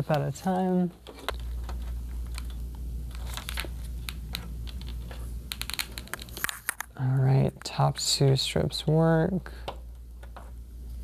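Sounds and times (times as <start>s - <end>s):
plastic crinkling: 0.0s - 7.8s
steady low hum: 0.0s - 11.0s.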